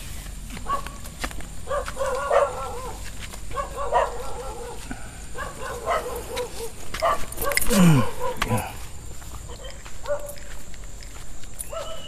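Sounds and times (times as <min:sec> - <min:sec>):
dogs barking: 0:00.6 - 0:01.0, 0:01.6 - 0:08.8, 0:09.4 - 0:10.5, 0:11.6 - 0:12.0.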